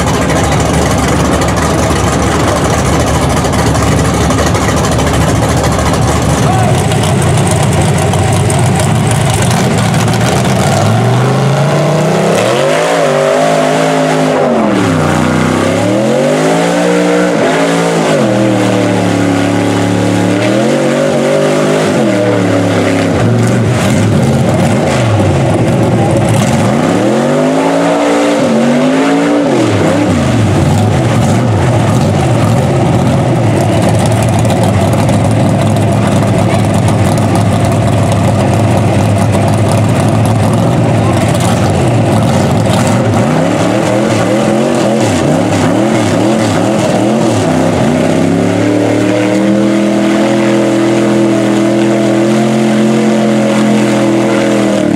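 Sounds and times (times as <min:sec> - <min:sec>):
truck engine revving: 0:00.0 - 0:54.9.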